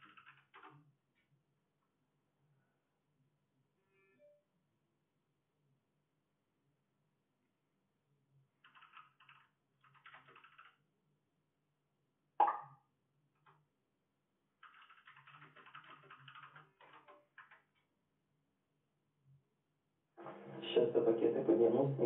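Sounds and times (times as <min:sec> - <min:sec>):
fast typing on keyboard: 0:00.0 - 0:00.9, 0:08.6 - 0:10.8, 0:14.6 - 0:17.8.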